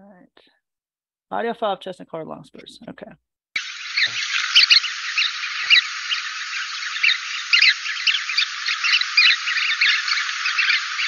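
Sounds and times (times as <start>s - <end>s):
flock of birds calling: 3.6s - 11.0s
steady hiss: 3.6s - 11.0s.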